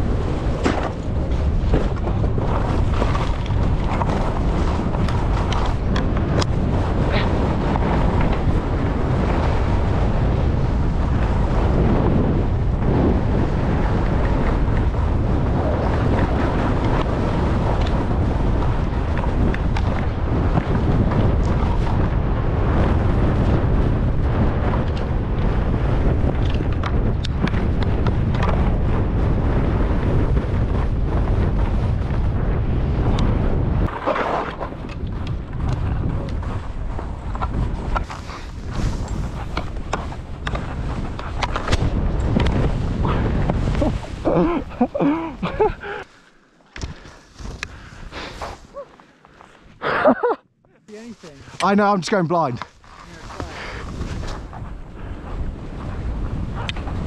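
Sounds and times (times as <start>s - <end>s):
skis scraping on snow: 0.0s - 49.8s, 50.8s - 57.0s
wind rushing over microphone: 0.0s - 57.0s.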